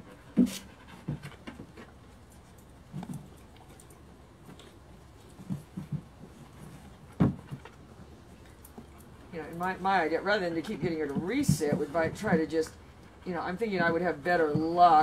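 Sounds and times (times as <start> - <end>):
dog paws tapping on hard floor: 9.4 - 12.8.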